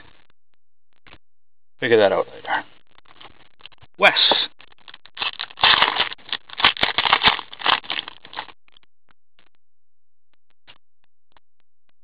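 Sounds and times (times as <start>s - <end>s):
foil wrapper crinkling and tearing: 4.1s - 8.5s
cards rustling: 5.2s - 8.5s.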